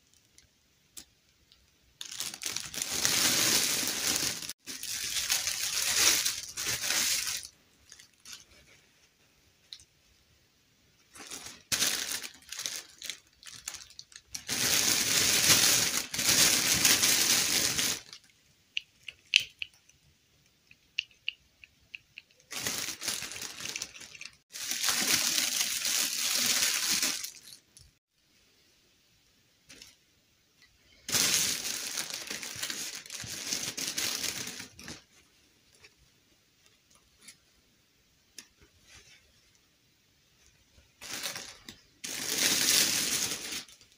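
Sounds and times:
plastic bag crinkling: 2.0s - 8.6s, 11.1s - 18.3s, 22.3s - 27.9s, 31.0s - 35.2s, 41.0s - 43.9s.

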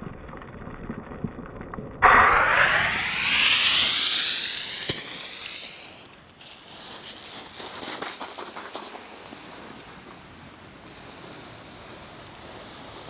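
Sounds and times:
pebbles crunching underfoot: 6.0s - 9.8s
wind and sea hiss: 8.2s - 13.0s.

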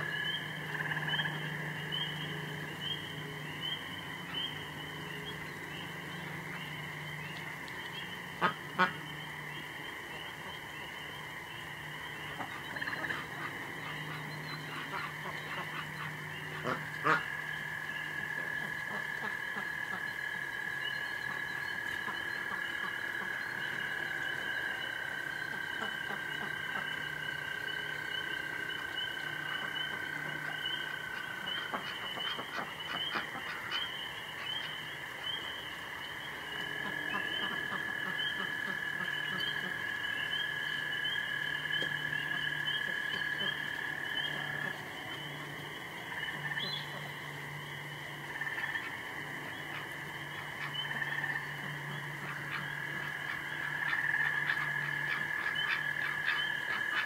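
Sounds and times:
geese calling: 0.0s - 11.2s, 11.9s - 20.2s, 20.8s - 35.5s, 48.3s - 57.0s
ducks calling: 0.0s - 47.4s, 48.2s - 57.0s
frogs chirping: 0.0s - 57.0s.

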